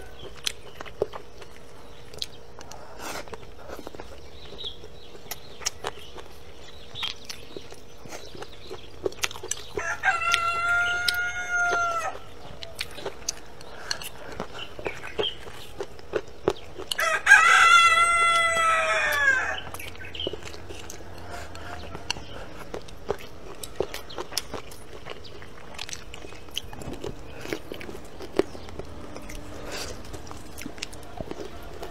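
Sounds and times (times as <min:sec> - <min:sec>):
person eating crunchily: 0:00.0 - 0:31.9
rooster crowing: 0:09.8 - 0:12.3, 0:16.9 - 0:19.8.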